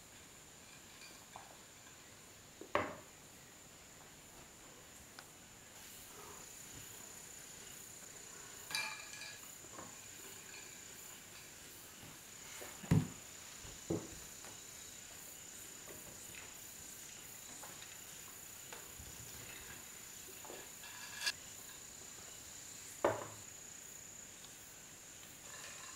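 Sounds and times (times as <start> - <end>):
crickets trilling: 0.1 - 25.9
glass clinking: 8.7 - 9.4.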